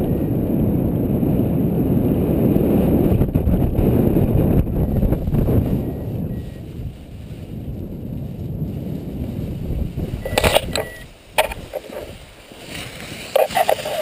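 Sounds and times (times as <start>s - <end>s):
wind buffeting microphone: 0.0s - 14.0s
camera knocking and rattling in grass: 10.2s - 14.0s.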